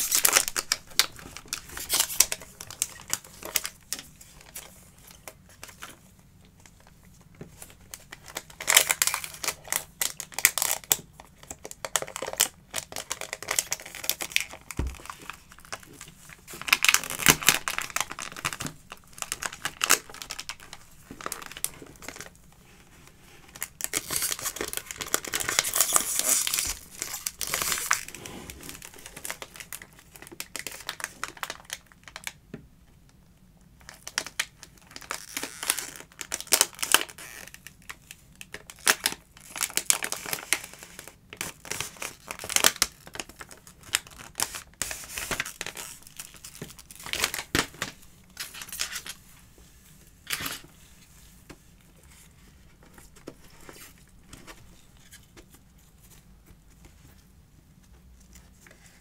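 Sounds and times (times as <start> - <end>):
paper packaging crinkling and tearing: 0.0 - 6.0, 7.5 - 32.4, 33.8 - 49.3.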